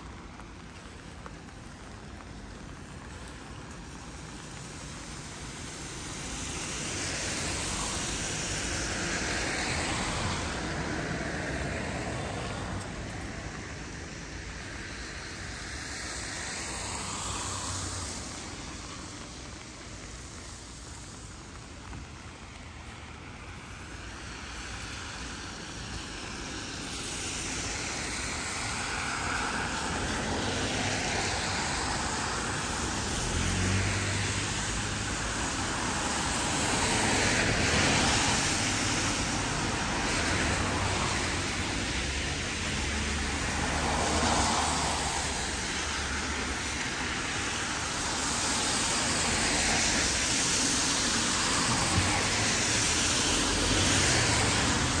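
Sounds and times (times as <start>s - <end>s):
vehicles passing: 0.0s - 55.0s.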